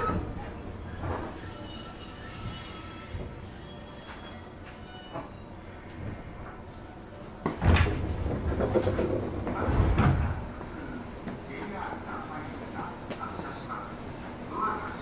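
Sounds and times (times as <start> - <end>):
high-pitched squeal: 0.5 - 6.0.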